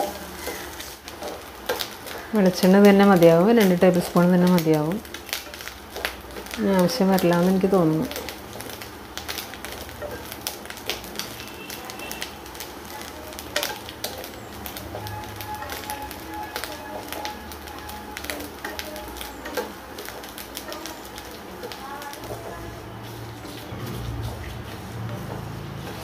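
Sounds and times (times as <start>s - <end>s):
spatula scraping a pan: 0.0s - 2.3s
light sizzle and crackle: 0.0s - 26.0s.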